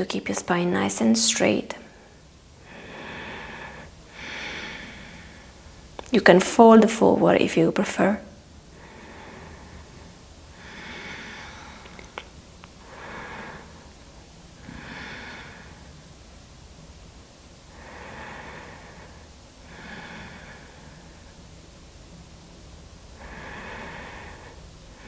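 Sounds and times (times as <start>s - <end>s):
woman breathing: 1.8s - 5.9s, 8.7s - 16.1s, 17.6s - 21.6s, 23.1s - 25.0s.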